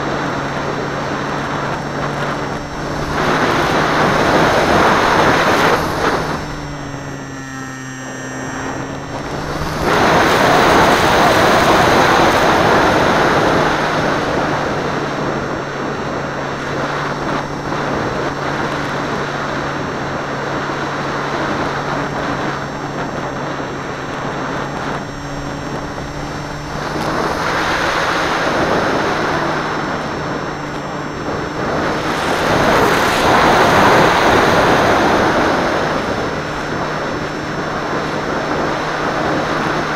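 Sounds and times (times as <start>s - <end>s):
plane motor humming: 0.0s - 39.9s
wind rushing over airframe: 0.0s - 39.9s.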